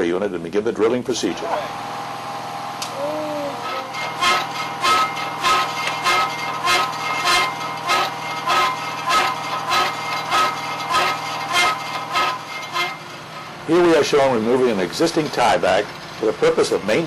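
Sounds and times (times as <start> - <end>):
hydraulic power unit hum: 0.0 - 17.0
coring bit grinding concrete: 3.6 - 17.0.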